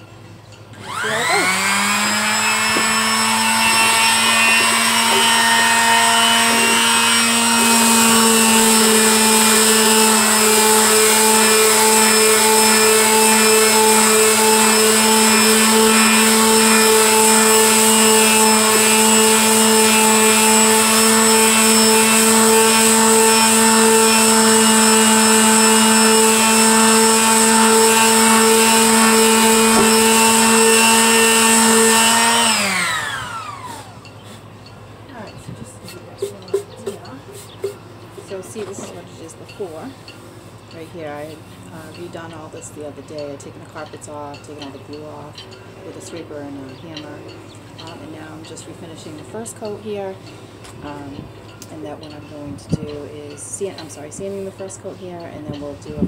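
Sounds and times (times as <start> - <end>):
electric palm sander on wood: 0.8 - 34.0.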